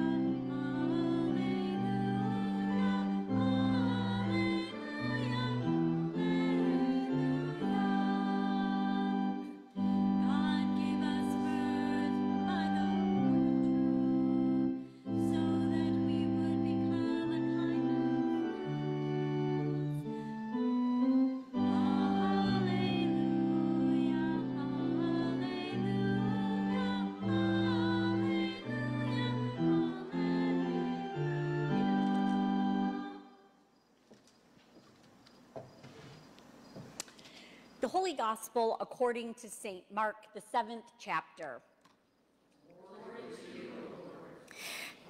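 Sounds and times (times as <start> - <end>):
congregation singing: 0.0 - 33.5, 42.6 - 44.6
church organ: 0.0 - 36.6.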